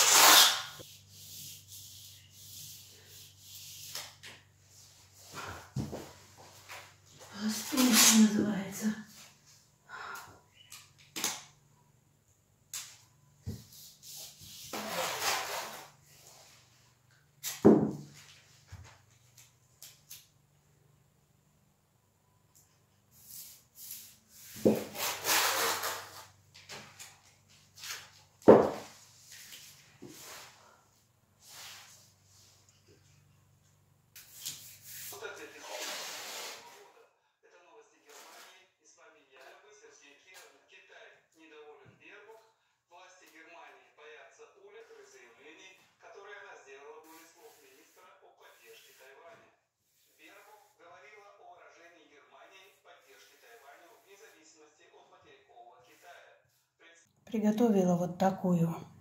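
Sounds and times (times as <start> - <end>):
masking tape tearing off roll: 0.0 - 0.9, 7.7 - 8.4, 14.7 - 16.0, 24.0 - 26.4, 35.6 - 36.8
tape scraping: 0.0 - 2.5, 7.6 - 8.4, 13.7 - 16.0, 23.3 - 30.5, 34.2 - 36.8
tape being rubbed onto wall: 0.0 - 6.9, 7.5 - 8.5, 12.8 - 20.0, 23.1 - 30.7, 31.4 - 32.7, 34.2 - 36.9, 38.1 - 38.6, 47.0 - 50.8, 53.0 - 54.4.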